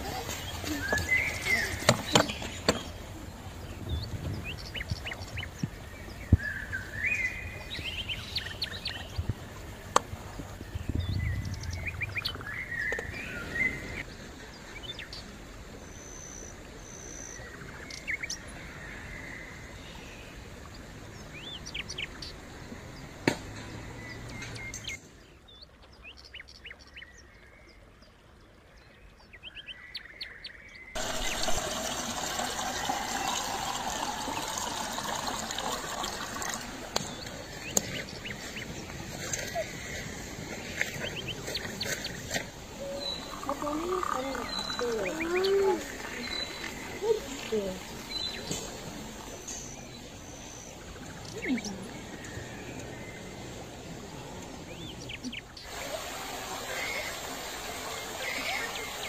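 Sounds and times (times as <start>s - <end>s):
birds chirping and calling: 0.0s - 9.6s, 36.2s - 55.8s
shallow stream rushing: 0.0s - 17.7s, 31.0s - 59.0s.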